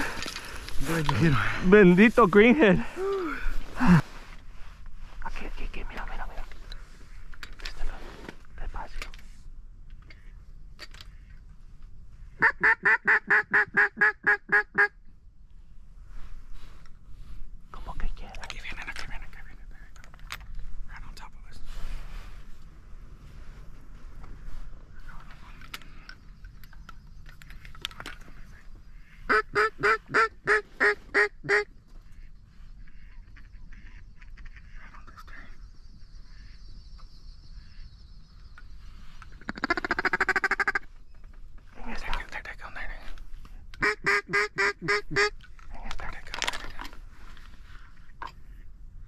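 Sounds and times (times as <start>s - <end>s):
duck call quacks: 12.4s - 15.0s, 29.0s - 32.3s, 39.5s - 40.8s, 43.8s - 45.4s.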